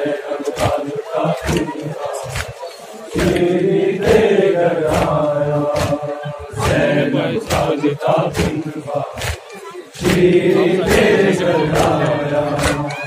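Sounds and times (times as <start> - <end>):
men chanting a lament: 0.0 - 13.0
hands slapping chests: 3.2 - 11.1, 11.7 - 12.9.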